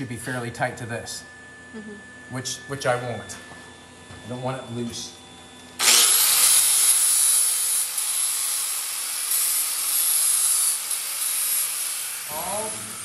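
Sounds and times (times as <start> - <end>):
grinder grinding metal: 5.8 - 13.0.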